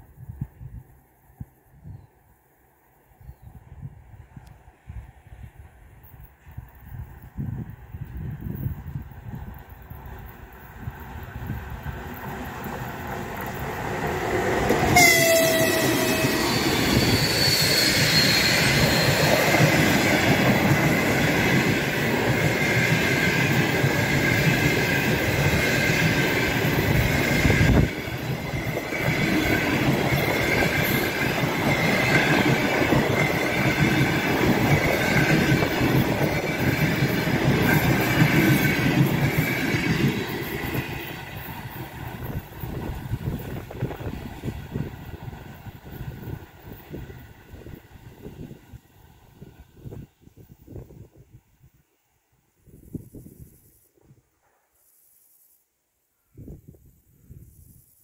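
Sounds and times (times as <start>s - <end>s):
train coaches rumbling: 4.7s - 50.0s
train horn blast: 14.9s - 16.8s
wheels squealing on curve: 14.9s - 20.0s.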